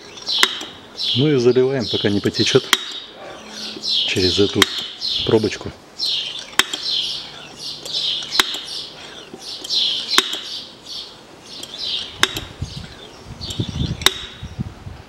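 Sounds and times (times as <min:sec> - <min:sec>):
sharp pump click: 0:00.2 - 0:00.8, 0:06.3 - 0:06.9, 0:07.8 - 0:08.8, 0:09.6 - 0:10.6, 0:11.6 - 0:12.6, 0:13.4 - 0:14.4.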